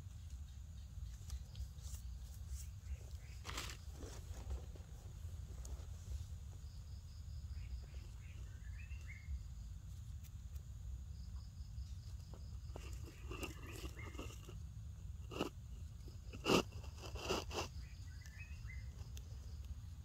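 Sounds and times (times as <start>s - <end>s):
insect trilling: 6.7s - 10.4s, 11.0s - 19.9s.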